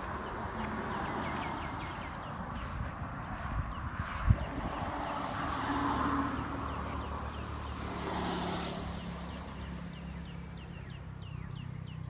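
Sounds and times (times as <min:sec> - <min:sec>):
bird chirping: 0:00.0 - 0:05.4, 0:08.8 - 0:12.0.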